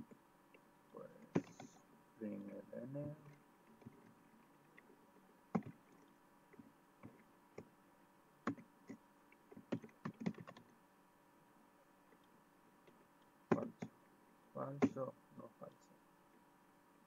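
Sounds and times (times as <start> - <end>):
keyboard clicks: 1.2 - 1.8, 5.5 - 6.0, 8.4 - 10.7, 13.5 - 13.9, 14.6 - 15.1.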